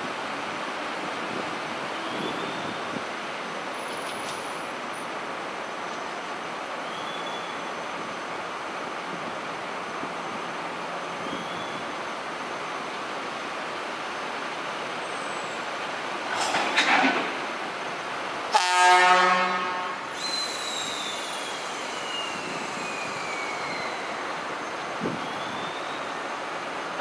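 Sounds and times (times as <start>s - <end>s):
locomotive air horn blast: 18.5s - 20.2s.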